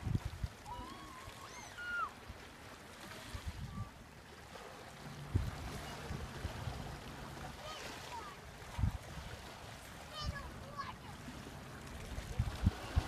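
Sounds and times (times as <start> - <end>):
wind buffeting the microphone: 0.0 - 1.1, 3.2 - 4.0, 5.2 - 7.1, 8.6 - 9.6, 11.9 - 13.0
lapping water: 0.0 - 13.0.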